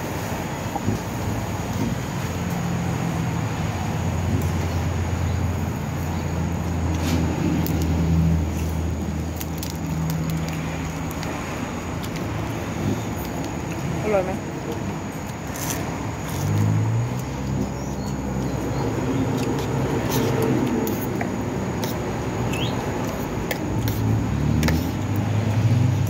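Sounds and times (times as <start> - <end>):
road traffic noise: 0.0 - 26.0.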